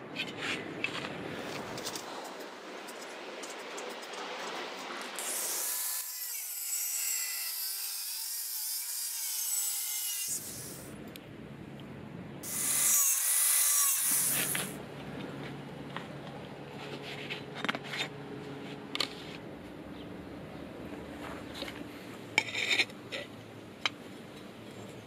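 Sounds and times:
angle grinder cutting steel: 5.1 - 10.9, 12.4 - 14.8.

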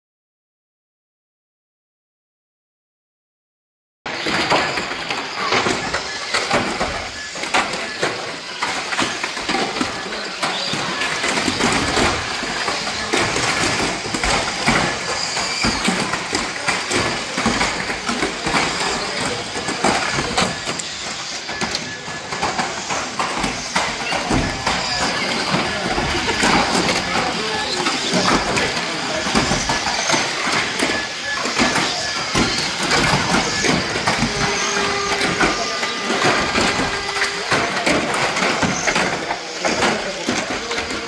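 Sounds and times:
plastic toy cars clattering: 4.1 - 41.0
toy car motors whining: 4.1 - 41.0.

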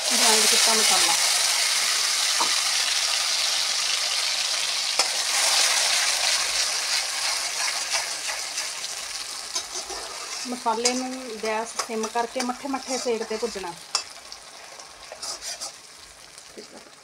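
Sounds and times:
masala sizzling in hot oil: 0.0 - 17.0
metal spatula stirring: 6.7 - 15.9.

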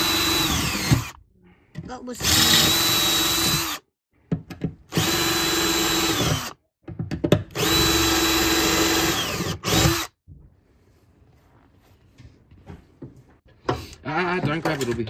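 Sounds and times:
cordless drill drilling rivets: 0.0 - 1.2, 2.2 - 3.8, 4.9 - 6.6, 7.5 - 10.1.

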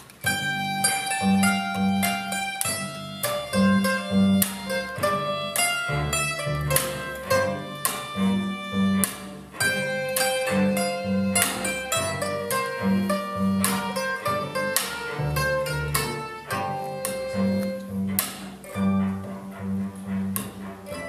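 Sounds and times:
acoustic string band playing: 0.0 - 21.0
mandolin chords strummed: 0.0 - 21.0.

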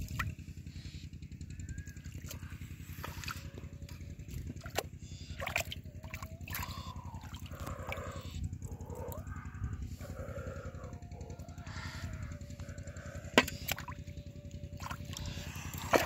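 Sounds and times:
steady low rumble: 0.0 - 16.0
hands splashing in muddy puddle: 14.8 - 16.0.

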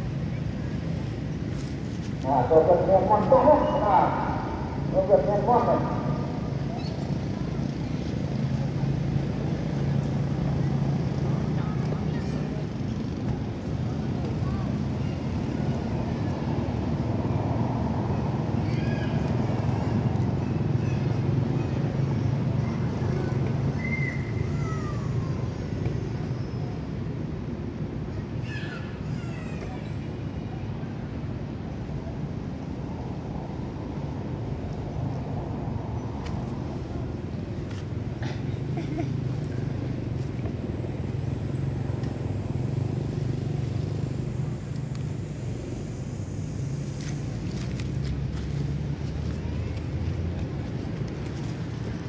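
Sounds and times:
low engine hum: 0.0 - 52.0.

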